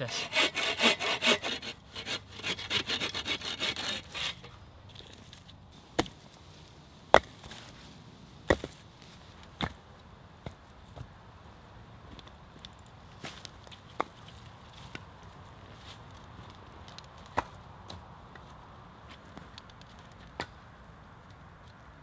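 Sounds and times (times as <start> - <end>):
saw cutting through log: 0.0 - 4.5.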